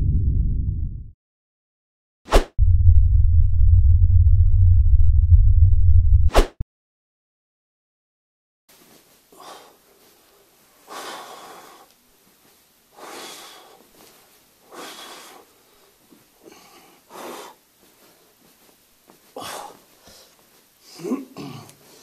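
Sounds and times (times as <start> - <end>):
man breathing out hard: 19.4 - 20.4.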